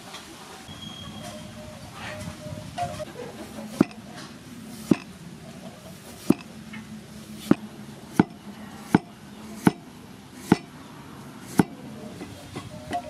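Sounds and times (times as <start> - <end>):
cleaver chopping on wooden block: 3.8 - 4.0, 4.8 - 5.1, 6.2 - 6.5, 7.5 - 10.8, 11.5 - 11.8.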